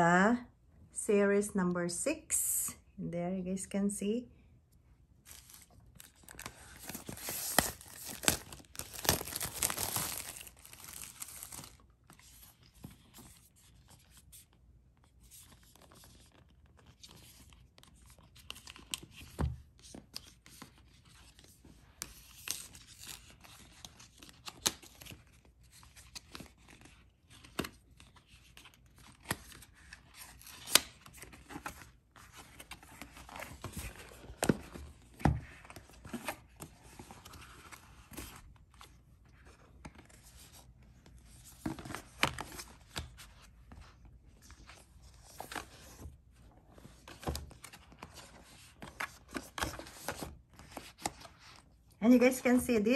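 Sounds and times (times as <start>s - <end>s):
plastic wrap tearing: 6.1s - 11.8s.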